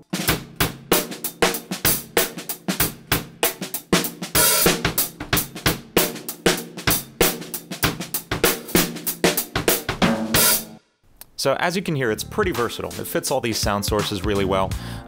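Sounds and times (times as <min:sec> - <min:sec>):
acoustic drum kit beat: 0:00.0 - 0:10.8, 0:12.3 - 0:15.0.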